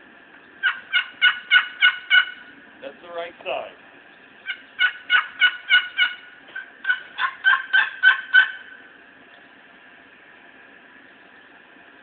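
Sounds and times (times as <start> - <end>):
box turkey call yelping: 0.6 - 2.5, 4.4 - 8.8.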